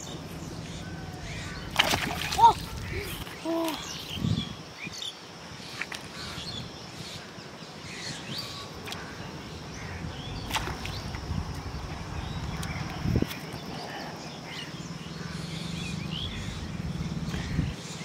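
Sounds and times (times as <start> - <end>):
steady low rumble: 14.7 - 17.8.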